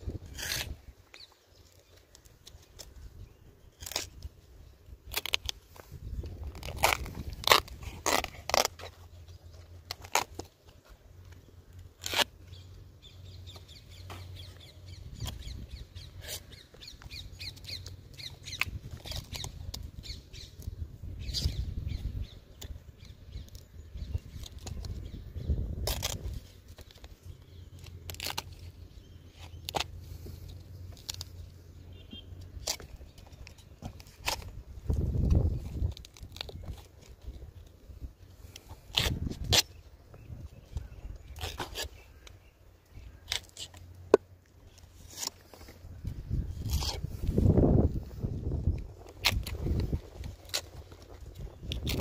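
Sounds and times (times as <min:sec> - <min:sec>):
knife scraping cuts: 0:00.2 - 0:00.8, 0:38.5 - 0:39.7, 0:41.3 - 0:42.0, 0:46.5 - 0:47.6.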